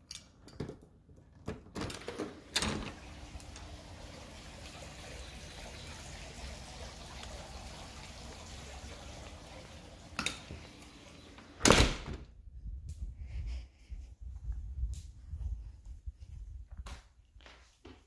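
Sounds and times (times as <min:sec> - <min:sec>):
outdoor hiss: 0:02.4 - 0:11.9
low rumble: 0:12.3 - 0:16.7.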